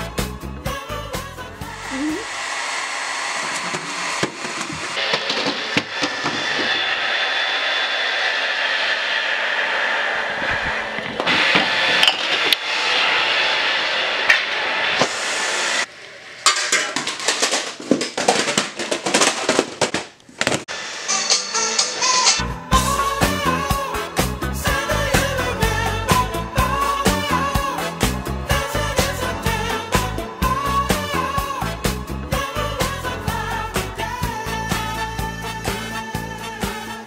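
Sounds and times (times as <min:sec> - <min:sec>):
steady rushing noise: 0:01.7 - 0:15.9
objects clattering on floor: 0:16.4 - 0:20.7.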